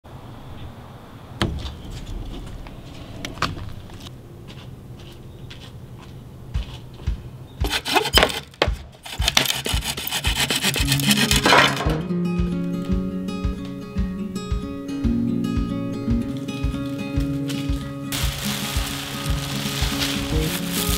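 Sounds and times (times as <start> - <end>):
hand tool rasping wooden board: 7.6 - 11.8
acoustic guitar music: 10.7 - 20.9.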